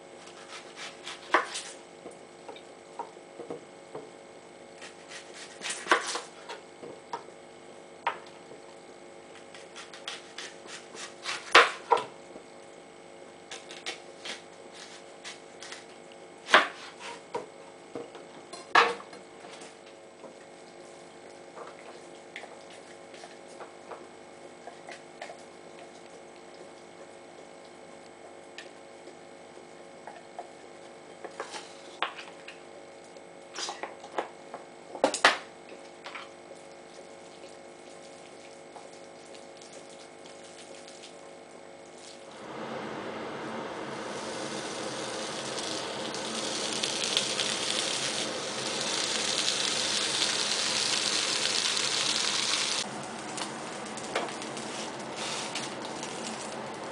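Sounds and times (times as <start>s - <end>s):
faint steady hum: 0.0s - 56.9s
knife slicing onion: 0.2s - 1.8s, 4.8s - 6.5s, 9.5s - 12.1s, 16.4s - 17.2s.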